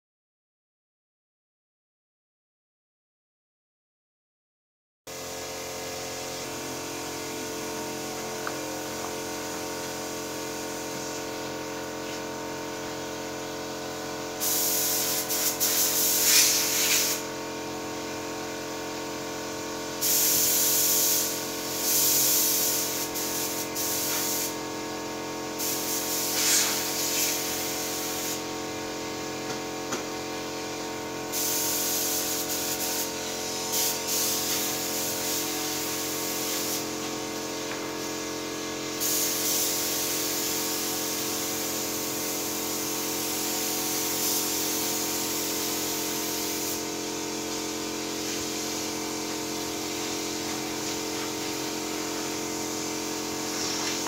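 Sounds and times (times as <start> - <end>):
steady machine hum: 5.1 - 14.4
air spray gun hissing: 5.1 - 54.0.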